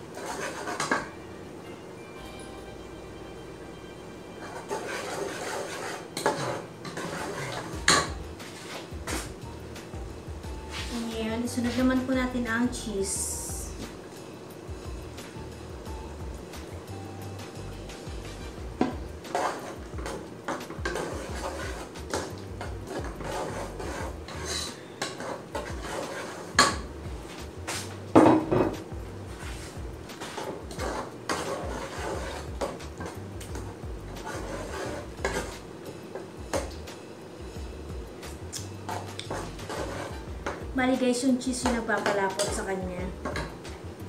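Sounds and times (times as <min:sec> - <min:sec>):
metal ladle scraping a pot: 0:00.1 - 0:01.1, 0:04.4 - 0:08.9, 0:19.3 - 0:20.2, 0:20.8 - 0:26.8, 0:29.4 - 0:33.2, 0:34.1 - 0:35.6, 0:38.9 - 0:40.6.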